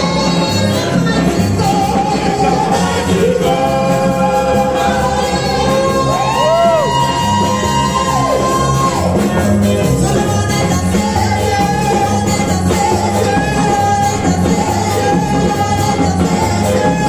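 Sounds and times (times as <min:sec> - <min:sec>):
backing music with steady beat: 0:00.0 - 0:17.0
woman singing gospel: 0:00.0 - 0:17.0.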